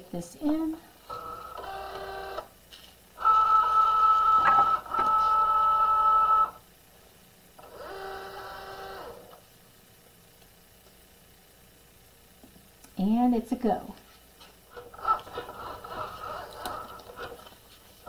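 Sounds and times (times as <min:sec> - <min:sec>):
cutting machine motors whining: 0:01.1 - 0:02.5, 0:03.2 - 0:06.6, 0:07.6 - 0:09.4, 0:14.7 - 0:17.5.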